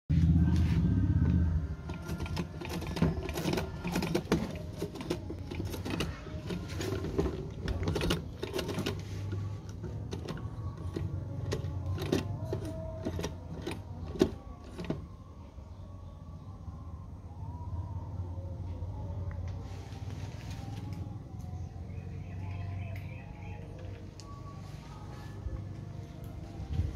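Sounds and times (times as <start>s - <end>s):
hand-crank sewing machine clattering: 1.9s - 15.0s.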